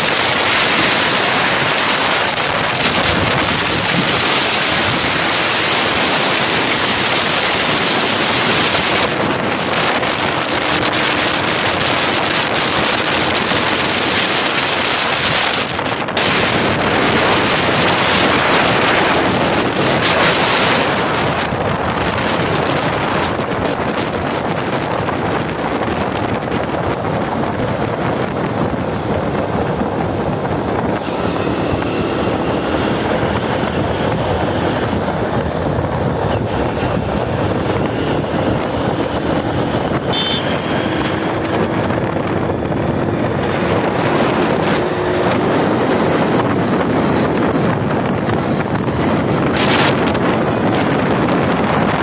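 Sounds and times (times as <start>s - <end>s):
motorcycle engine running: 0.0s - 52.0s
wind rushing over microphone: 0.0s - 52.0s.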